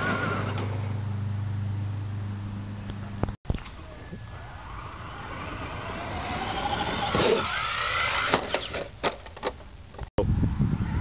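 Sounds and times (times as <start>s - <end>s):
toy truck motor whine: 4.5s - 8.9s.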